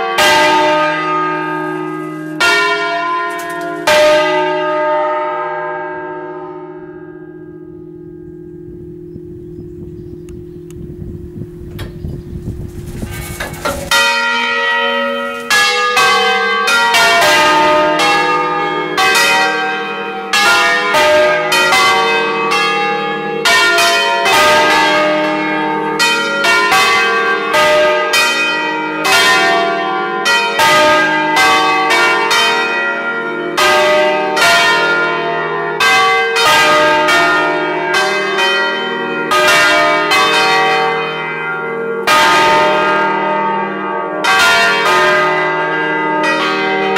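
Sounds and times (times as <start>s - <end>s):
church bells ringing: 0.0s - 46.9s.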